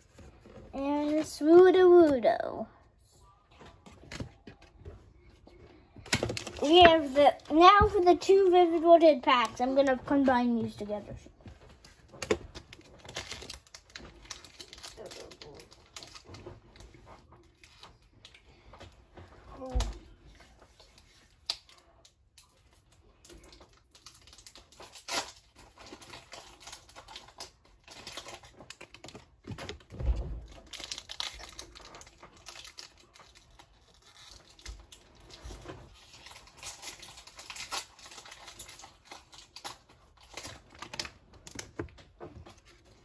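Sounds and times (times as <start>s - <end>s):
foil wrappers tearing and crinkling: 12.6s - 16.4s, 23.4s - 29.6s, 30.5s - 41.8s.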